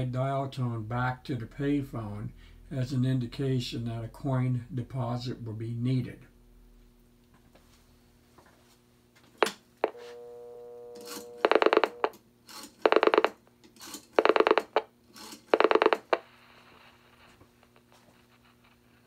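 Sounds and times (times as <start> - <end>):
dial tone: 9.8 - 12.2.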